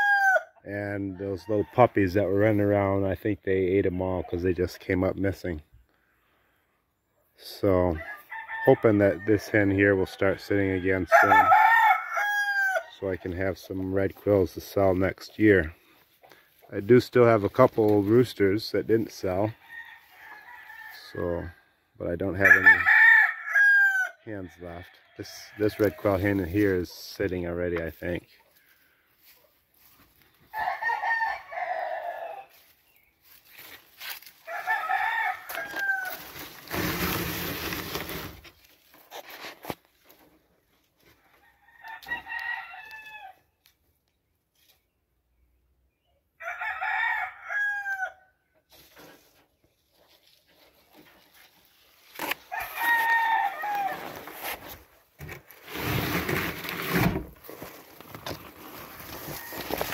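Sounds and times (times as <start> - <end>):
roosters crowing: 0.0 - 0.6, 7.9 - 13.0, 19.6 - 21.4, 22.3 - 26.3, 30.5 - 32.7, 34.4 - 38.3, 41.3 - 43.4, 46.4 - 48.3, 52.4 - 54.4, 59.0 - 59.9
rustling noise: 35.4 - 41.2, 48.7 - 59.9.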